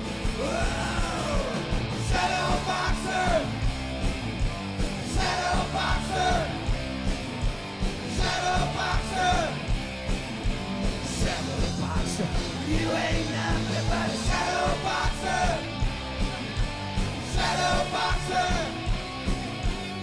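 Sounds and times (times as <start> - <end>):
driving drum beat: 0.0 - 20.0
hard rock band playing: 0.0 - 20.0
singer shouting: 0.4 - 3.6, 5.1 - 6.6, 8.1 - 9.7.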